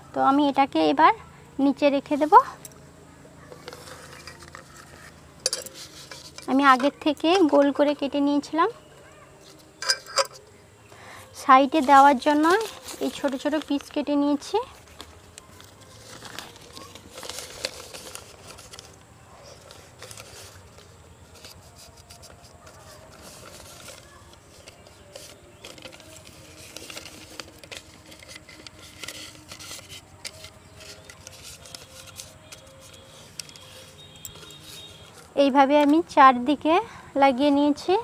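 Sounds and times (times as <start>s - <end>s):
newspaper rustling and crinkling: 3.5s - 7.9s, 11.6s - 36.2s.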